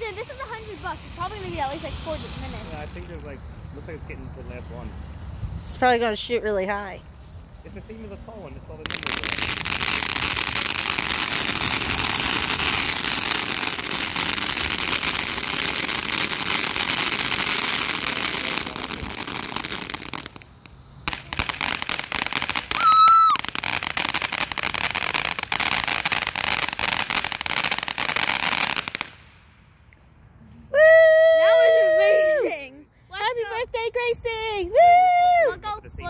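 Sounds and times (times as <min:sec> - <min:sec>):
fireworks fountain hissing: 0:00.0 - 0:29.7
crackling firework pops: 0:08.9 - 0:30.1.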